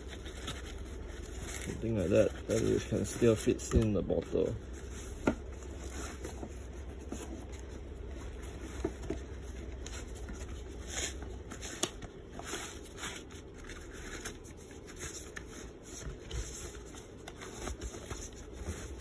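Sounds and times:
fabric rustling and scraping: 0.0 - 3.7, 4.3 - 19.0.

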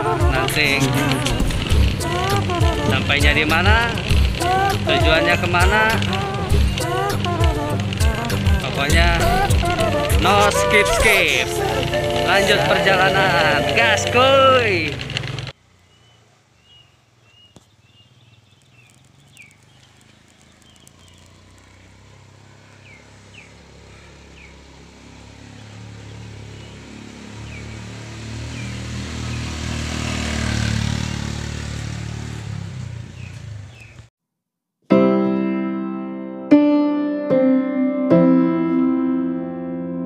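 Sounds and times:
piano music: 0.0 - 15.0, 34.9 - 40.0
motorbike engine passing: 0.0 - 16.8, 17.9 - 34.1.

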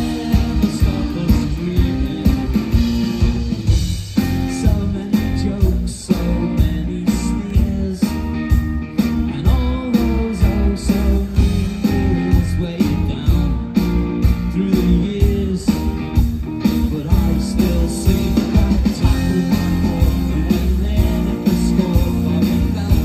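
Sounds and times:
live rock band playing: 0.0 - 23.0
steady drum beat: 0.0 - 23.0.

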